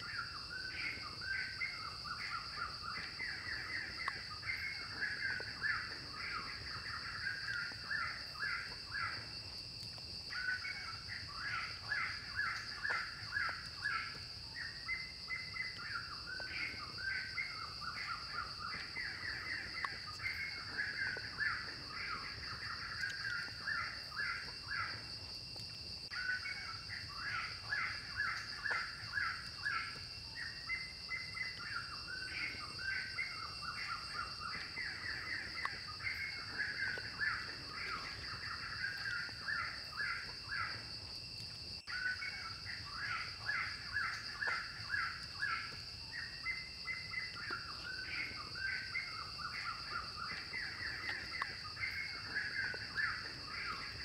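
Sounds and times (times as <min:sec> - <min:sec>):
birds chattering: 0:00.0 - 0:09.6, 0:10.2 - 0:25.1, 0:26.1 - 0:40.8.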